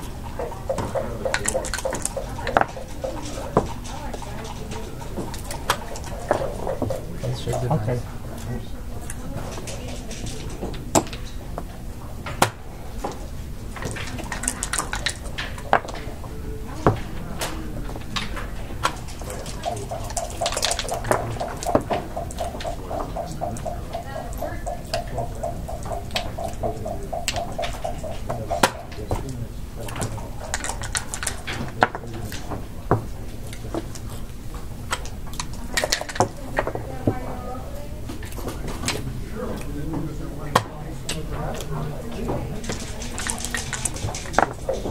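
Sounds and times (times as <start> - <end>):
checkers clacking on board: 0.0 - 37.6, 38.2 - 44.9
dice rattling in cup: 42.6 - 44.9.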